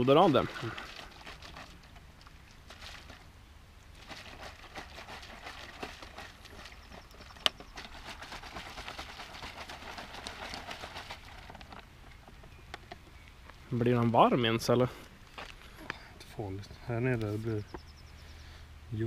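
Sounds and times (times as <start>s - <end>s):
plastic bottle crackling: 4.0s - 13.0s.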